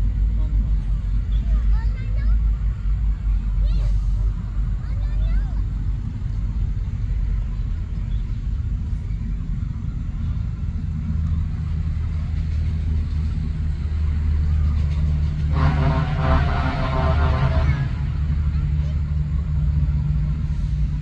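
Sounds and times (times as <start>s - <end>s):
engine rumbling: 0.0s - 21.0s.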